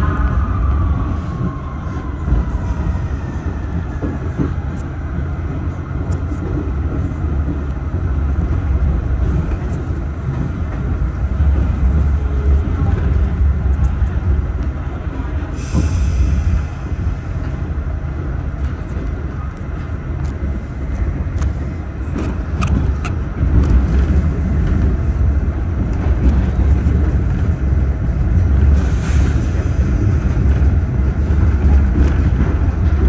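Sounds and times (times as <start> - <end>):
subway car whine: 0.0 - 33.0
wheels rumbling on rails: 0.0 - 33.0.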